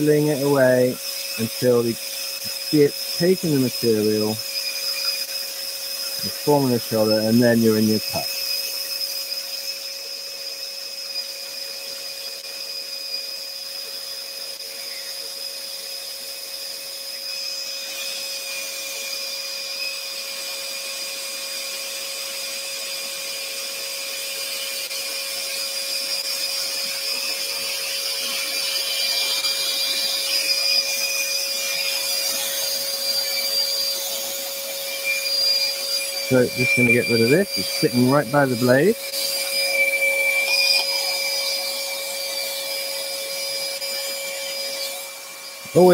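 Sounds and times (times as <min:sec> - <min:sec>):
dust extractor running: 0:00.0 - 0:04.5, 0:06.1 - 0:08.4, 0:25.4 - 0:45.9
scroll saw cutting wood: 0:00.0 - 0:45.9.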